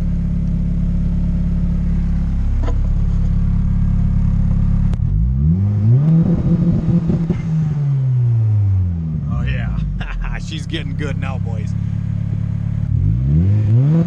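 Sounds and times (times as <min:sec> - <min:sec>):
turbocharged car engine idling: 0:00.0 - 0:05.1, 0:09.1 - 0:13.1
engine revving against rev limiter: 0:05.1 - 0:08.3, 0:12.8 - 0:14.0.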